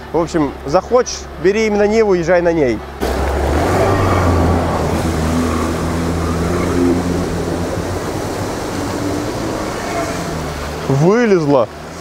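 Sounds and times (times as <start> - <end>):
tyres churning through mud: 0.0 - 12.0
car engine running under load: 2.8 - 12.0.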